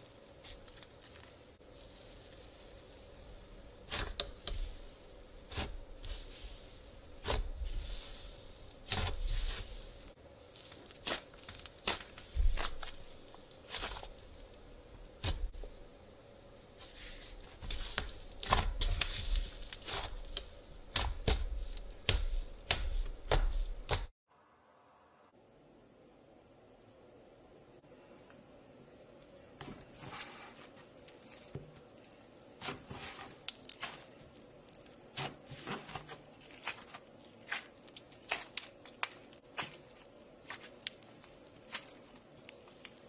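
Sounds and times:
slime squishing with pops: 2.0s - 9.9s, 10.6s - 14.4s, 17.6s - 24.1s, 31.1s - 43.0s.

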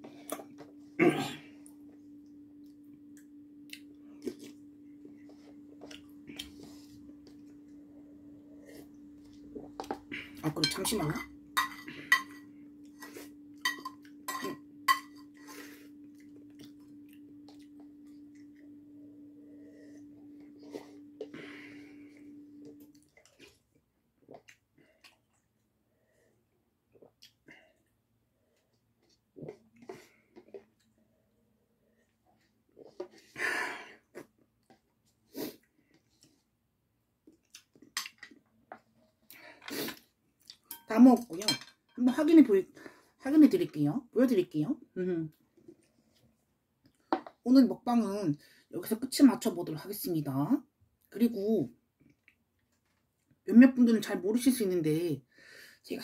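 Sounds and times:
steady low hum: 0.0s - 23.2s
spoon clinking on a plate: 10.6s - 12.5s, 13.6s - 15.4s.

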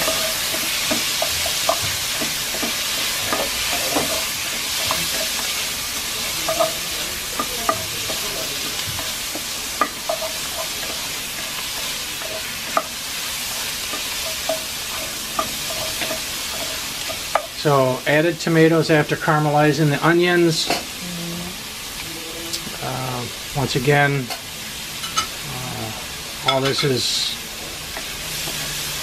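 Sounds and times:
spatula scraping and knocking pot: 0.0s - 5.6s
vegetables sizzling in oil: 0.0s - 29.0s.

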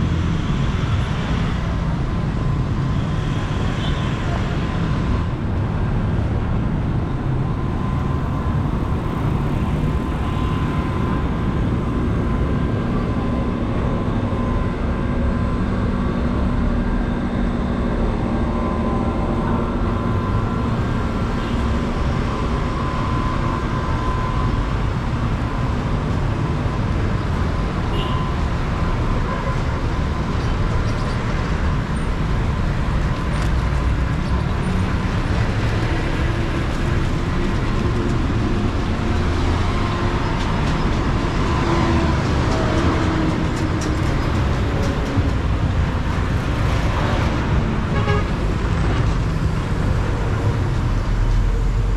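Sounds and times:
road noise: 0.0s - 51.9s.

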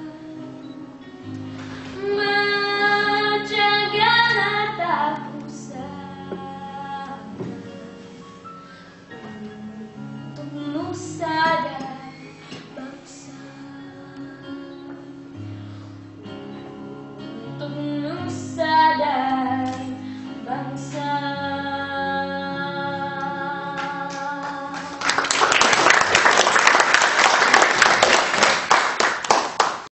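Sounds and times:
girl singing into microphone: 1.8s - 7.9s, 9.1s - 15.2s, 16.2s - 25.1s
applause: 23.8s - 29.9s.

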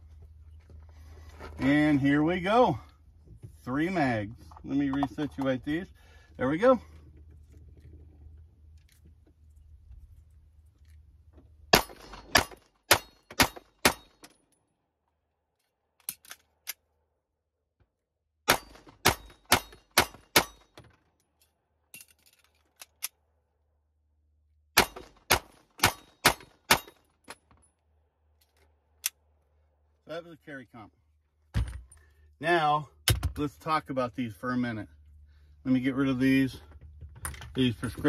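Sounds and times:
pistol shots: 11.7s - 14.1s, 18.5s - 20.6s, 24.8s - 27.0s
bullets clanging on steel: 11.7s - 14.6s, 18.5s - 23.2s, 24.8s - 27.7s.

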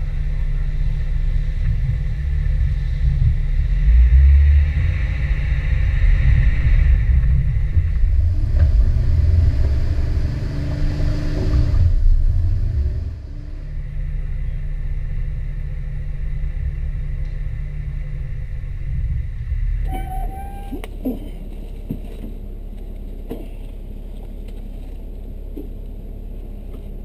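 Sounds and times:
off-road vehicle rumbling: 0.0s - 27.0s
higher steady tone: 19.6s - 21.3s.

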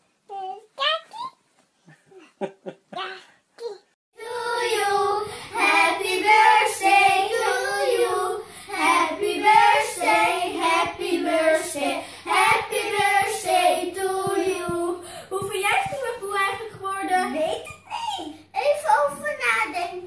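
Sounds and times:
children singing: 4.2s - 15.1s.

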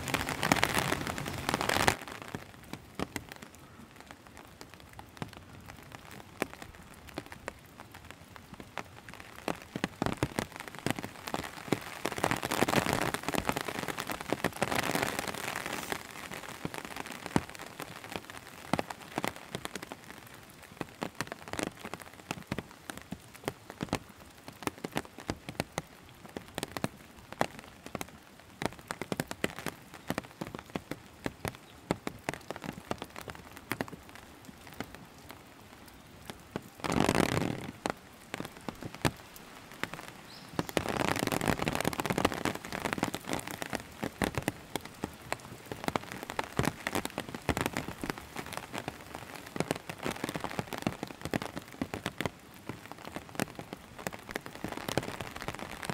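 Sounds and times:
close raindrop hits: 0.0s - 55.9s
rain falling: 0.0s - 55.9s.

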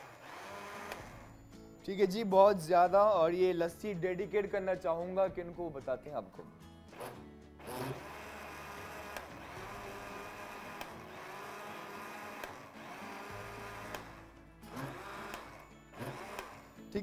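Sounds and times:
countertop blender running: 0.0s - 1.3s, 6.9s - 16.8s.

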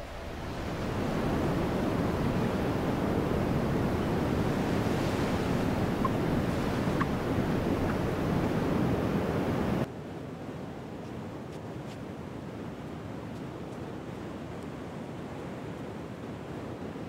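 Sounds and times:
ocean surf: 0.0s - 9.9s
wind buffeting microphone: 0.0s - 9.9s.

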